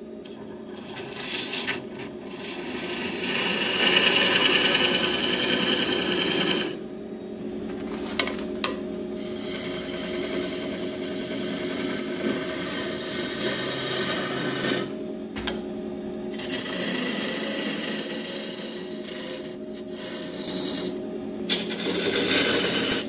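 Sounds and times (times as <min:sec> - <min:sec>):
lathe gouge cutting wood: 0:00.8 - 0:06.8, 0:09.2 - 0:14.9, 0:16.4 - 0:20.9, 0:21.5 - 0:23.0.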